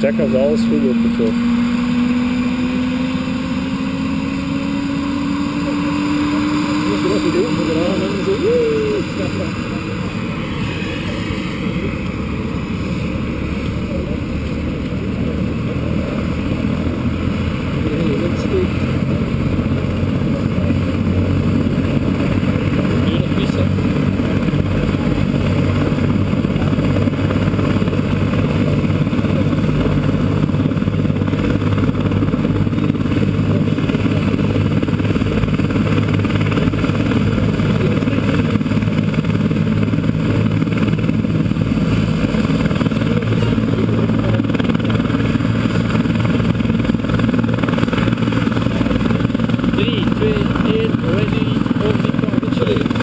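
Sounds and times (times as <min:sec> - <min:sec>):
helicopter rotor and turbine drone: 0:00.0 - 0:53.0.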